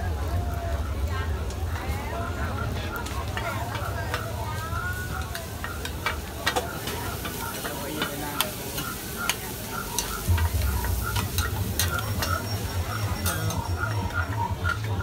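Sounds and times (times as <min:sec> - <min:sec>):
food sizzling on griddle: 0:03.0 - 0:15.0
metal spatulas clacking and scraping: 0:05.3 - 0:15.0.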